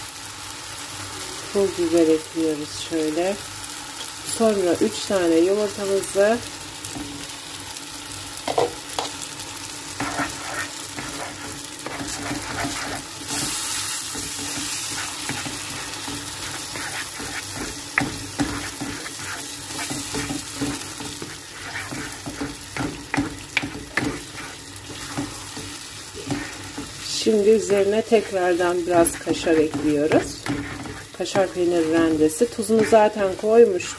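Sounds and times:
eggs sizzling in a frying pan: 0:00.0 - 0:33.9
spatula scraping a pan: 0:09.8 - 0:33.9.

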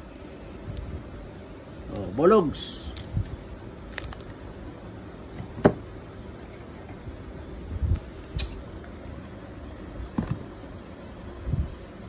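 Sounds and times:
steady background hum: 0:00.0 - 0:12.0
plastic film crackling: 0:02.9 - 0:04.4.

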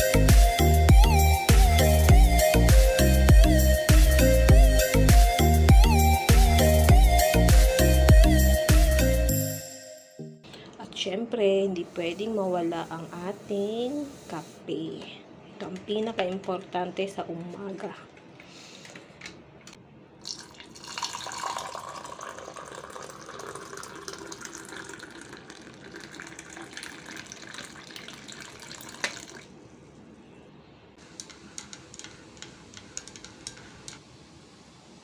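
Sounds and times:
water pouring into a ceramic mug: 0:20.2 - 0:29.6
stirrer clinking against mug: 0:31.1 - 0:34.0.

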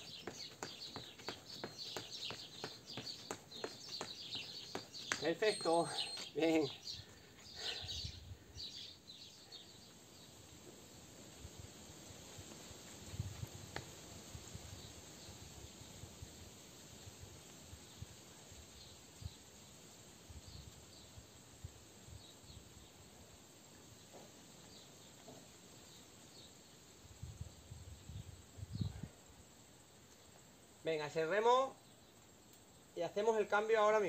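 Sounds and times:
steady hiss: 0:08.6 - 0:33.9.

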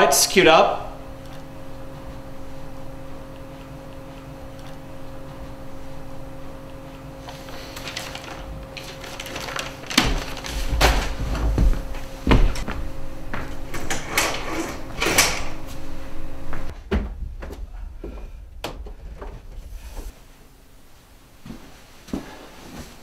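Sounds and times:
low electrical hum: 0:00.0 - 0:23.0
knocks and thumps: 0:10.0 - 0:12.8, 0:16.7 - 0:20.1.

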